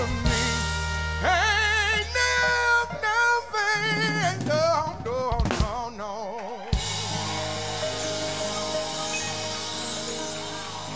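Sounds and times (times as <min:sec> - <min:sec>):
man singing with vibrato: 0:00.0 - 0:06.8
piano and live band: 0:00.0 - 0:10.9.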